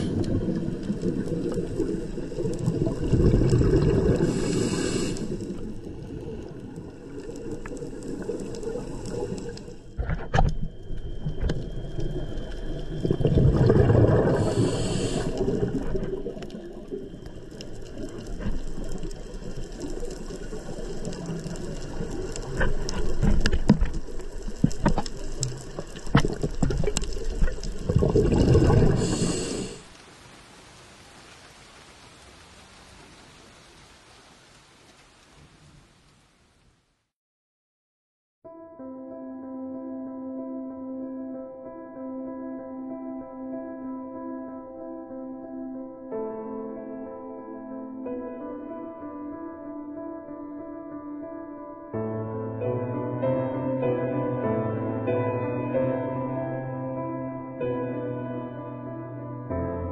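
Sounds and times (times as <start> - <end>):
diver exhaling bubbles: 0.0 - 10.2, 12.8 - 23.4, 24.0 - 29.9
regulator hiss: 4.3 - 5.5, 14.3 - 16.0, 28.9 - 29.9.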